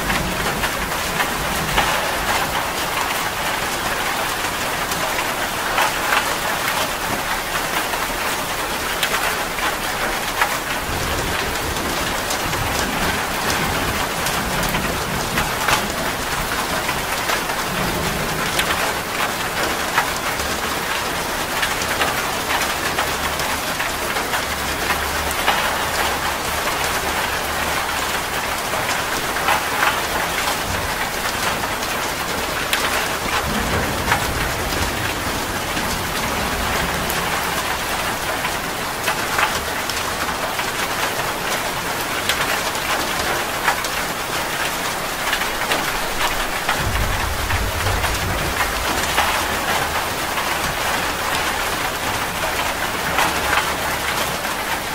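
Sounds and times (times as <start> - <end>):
heavy rain splashing: 0.0 - 54.9
low rumble: 46.4 - 50.4.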